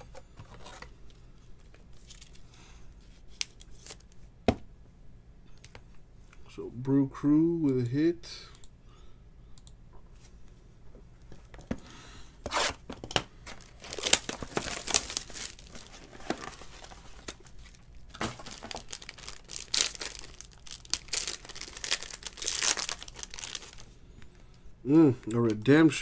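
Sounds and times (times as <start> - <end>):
foil wrapper crinkling and ripping: 13.6 - 23.9.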